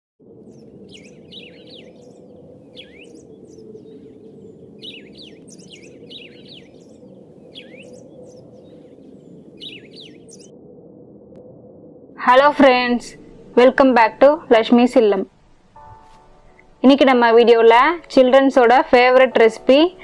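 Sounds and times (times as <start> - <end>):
birds chirping: 0.3 - 10.5.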